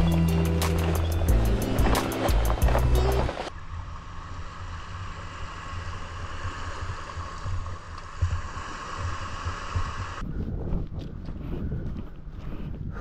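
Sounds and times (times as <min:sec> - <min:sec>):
wind buffeting microphone: 0:06.0 - 0:13.0.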